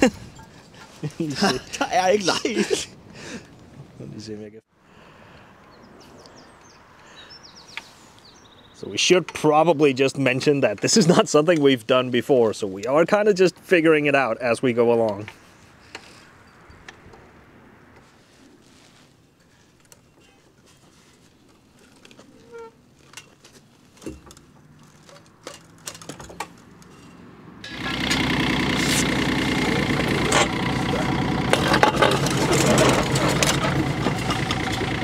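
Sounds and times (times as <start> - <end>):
excavator engine running: 27.6 - 35.0
metal knocks and clanks: 30.0 - 35.0.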